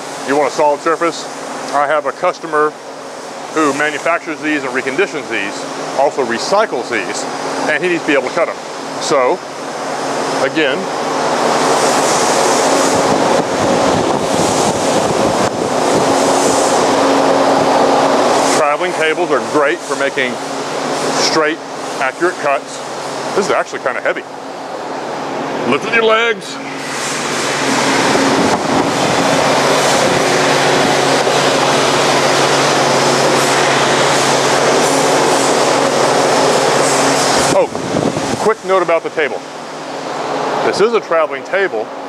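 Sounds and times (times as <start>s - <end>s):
bandsaw running: 25.6s - 37.7s.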